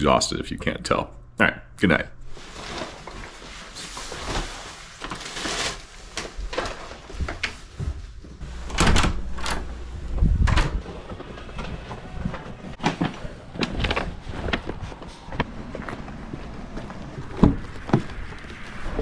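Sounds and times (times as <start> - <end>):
door opening: 8.4 - 14.0.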